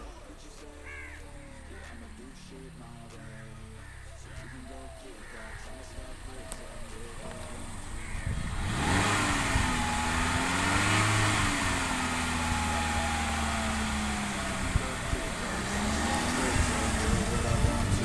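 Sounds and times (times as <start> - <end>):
car engine under light throttle: 6.1 - 18.0.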